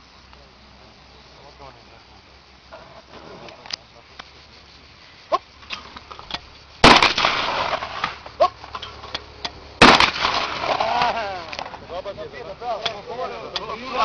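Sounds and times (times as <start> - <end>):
shotgun shots with echo: 6.8 - 8.1, 9.8 - 10.9.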